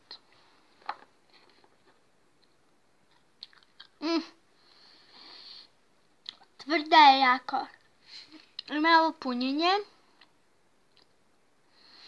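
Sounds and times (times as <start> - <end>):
chewing gum crunches: 3.1 - 4.0.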